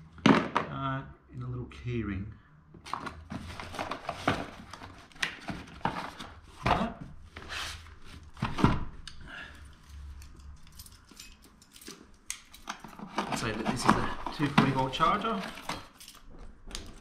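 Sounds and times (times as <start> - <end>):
cardboard scraping and rustling: 2.9 - 6.6, 12.9 - 15.8.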